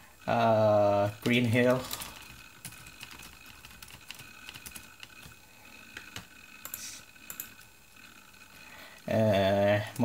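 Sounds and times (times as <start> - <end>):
laptop keyboard typing: 1.0 - 7.7.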